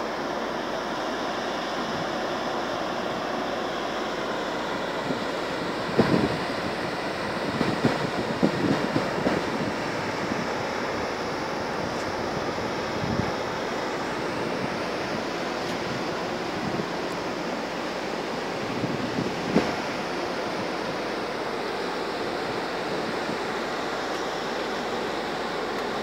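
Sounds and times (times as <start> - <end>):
wind noise on microphone: 5.0 - 17.4, 18.2 - 21.1.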